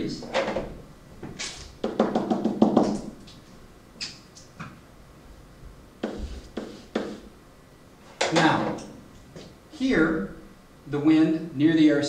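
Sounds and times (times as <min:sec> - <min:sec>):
stylus tapping on whiteboard: 0:01.8 - 0:03.0, 0:06.0 - 0:07.3.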